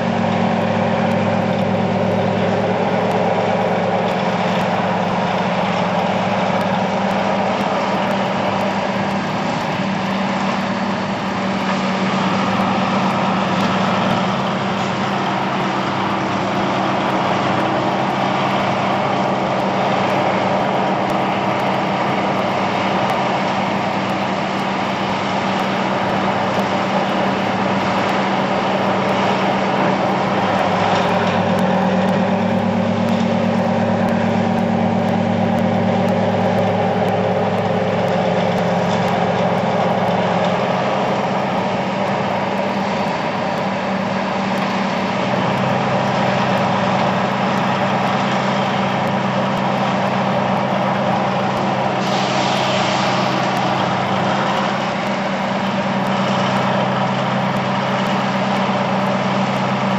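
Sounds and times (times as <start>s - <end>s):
diesel engine running steadily: 0.0s - 59.9s.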